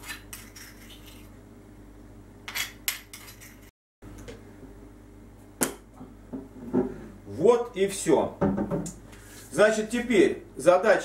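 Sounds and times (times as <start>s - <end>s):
spoon scraping stone mortar: 0.0s - 1.4s, 2.5s - 3.7s.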